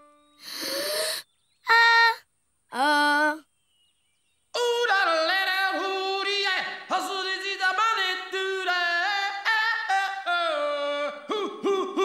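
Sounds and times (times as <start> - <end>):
cartoon voice warbling birdsong: 0.4 - 3.5.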